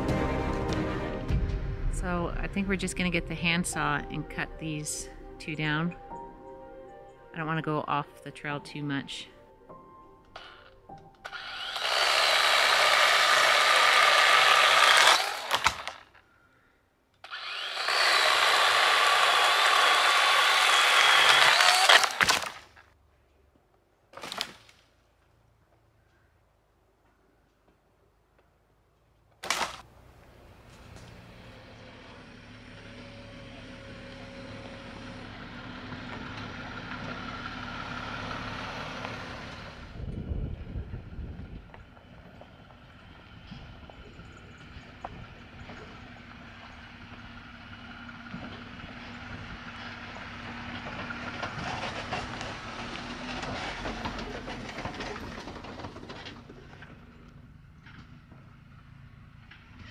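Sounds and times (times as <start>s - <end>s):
low rumble: 0.0s - 7.6s, 39.7s - 46.1s
wood cracking: 10.3s - 16.3s, 17.2s - 23.0s, 24.1s - 25.3s, 29.3s - 31.4s, 50.4s - 58.1s
power saw cutting wood: 10.4s - 16.2s, 17.2s - 22.7s, 30.6s - 40.0s, 45.0s - 56.2s
vehicle engine running slowly: 25.1s - 59.9s.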